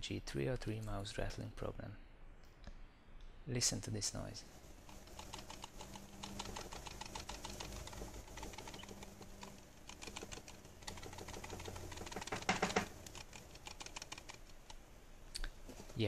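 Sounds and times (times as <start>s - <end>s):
mouse clattering: 4.8s - 14.8s
mouse lens rattling: 4.8s - 14.8s.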